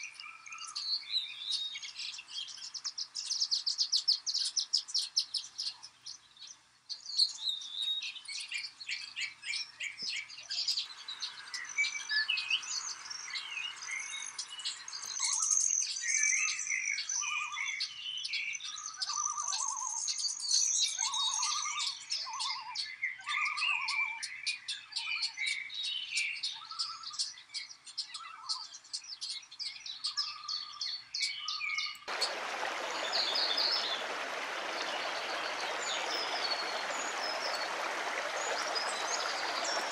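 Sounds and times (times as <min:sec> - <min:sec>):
songbirds chirping: 0:00.0 - 0:39.9
mountain stream rushing: 0:32.1 - 0:39.9.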